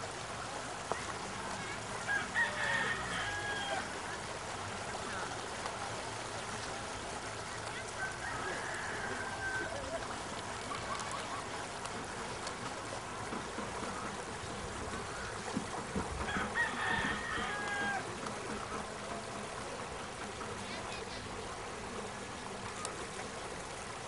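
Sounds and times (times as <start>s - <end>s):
steady background noise: 0.0s - 24.0s
rooster crowing: 2.1s - 4.0s, 8.0s - 9.9s, 16.2s - 18.1s.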